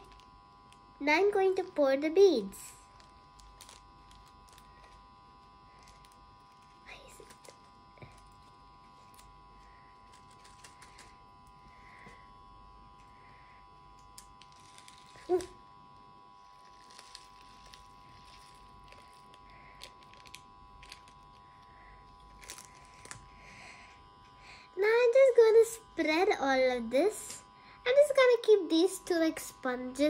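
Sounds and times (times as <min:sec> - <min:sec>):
plastic bag crinkling: 0:00.0 - 0:00.9, 0:02.8 - 0:12.2, 0:14.0 - 0:15.7, 0:16.3 - 0:23.8.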